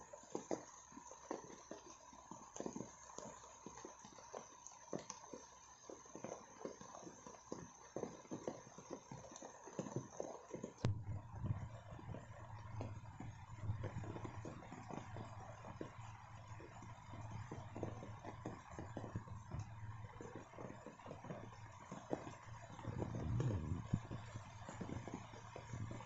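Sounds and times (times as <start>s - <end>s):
raindrops on leaves: 0.0s - 26.0s
steady high hiss: 0.0s - 26.0s
low hum: 10.9s - 26.0s.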